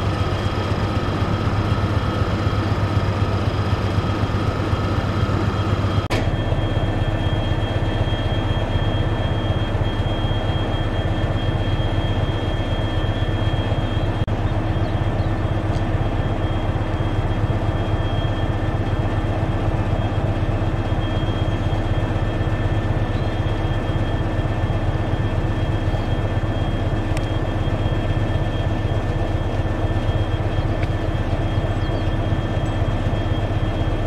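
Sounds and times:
diesel locomotive idling rumble: 0.0s - 34.0s.

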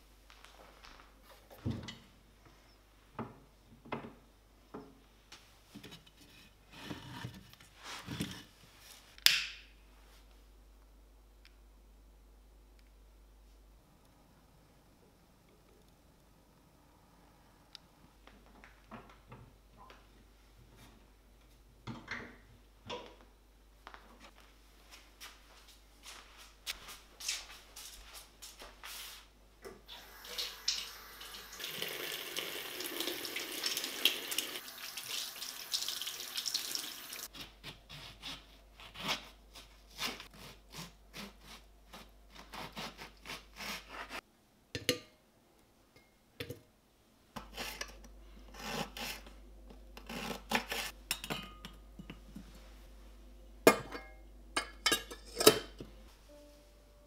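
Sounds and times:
tap water running over hands: 29.9s - 37.3s
kitchen handling clicks and knocks: 53.7s - 55.9s.

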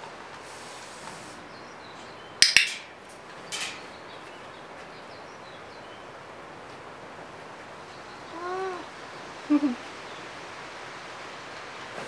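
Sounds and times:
spray bottle misting hiss: 0.4s - 1.4s.

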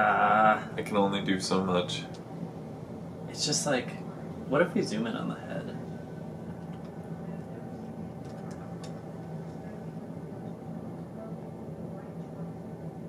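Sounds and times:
fan hum: 0.0s - 13.0s.

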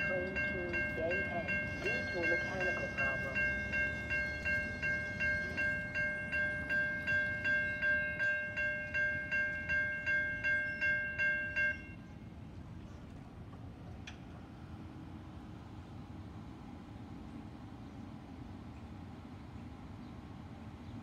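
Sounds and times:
railroad crossing bell ringing: 0.0s - 12.3s.

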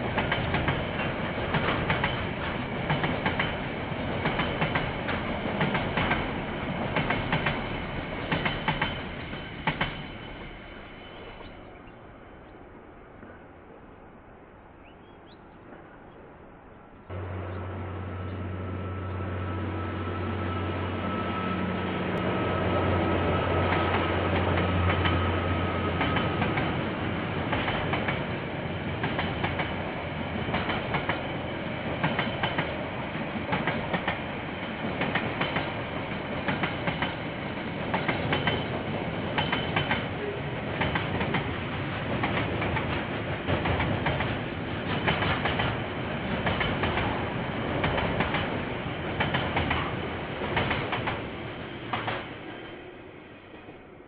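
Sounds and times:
train wheels clicking on rail joints: 0.0s - 11.7s, 23.3s - 52.6s
locomotive engine droning: 15.4s - 27.3s.

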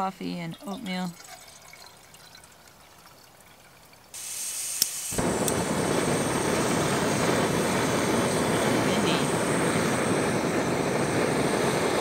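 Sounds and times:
water trickling into metal pot: 0.1s - 4.8s
gas hissing: 4.1s - 12.0s
gas burner roaring: 4.2s - 12.0s
stove igniter click: 4.6s - 7.3s.

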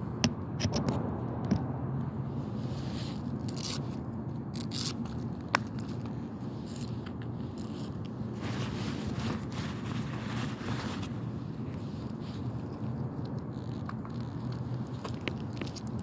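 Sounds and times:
steady low rumble: 0.0s - 16.0s
scraping rustles: 4.6s - 16.0s.

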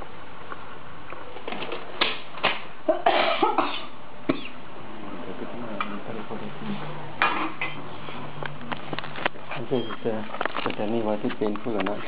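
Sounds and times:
person coughing: 2.9s - 4.6s.

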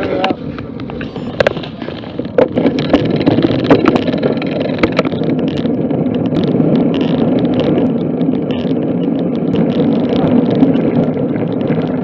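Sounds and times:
bicycle tyre rumble: 0.0s - 12.0s
wind noise on microphone: 0.0s - 12.0s
sharp clicks and knocks: 0.2s - 12.0s.

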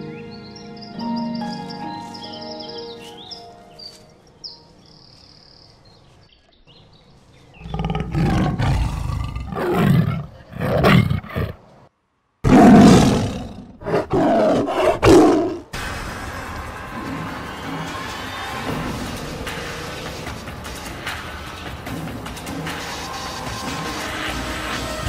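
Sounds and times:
loud animal roars: 7.6s - 11.6s, 12.4s - 15.8s.

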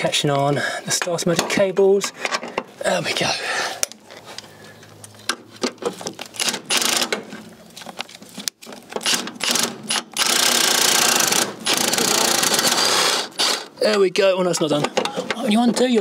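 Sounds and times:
ratchet wrench clicking: 9.0s - 13.5s.

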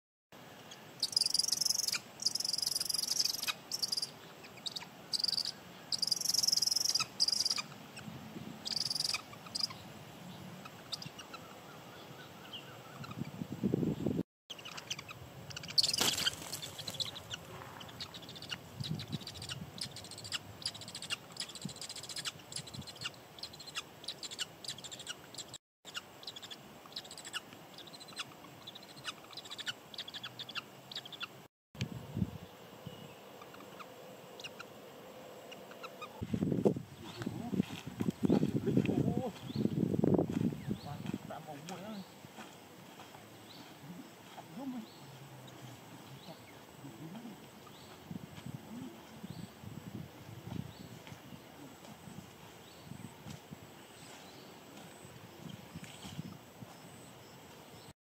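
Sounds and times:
nestlings shrill calls: 1.0s - 7.7s, 8.6s - 9.8s, 14.5s - 31.3s.

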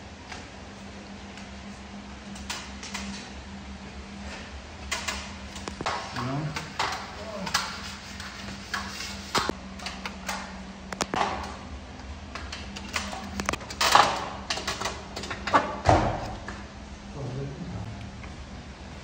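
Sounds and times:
knife scraping paint on wall: 6.6s - 9.5s.

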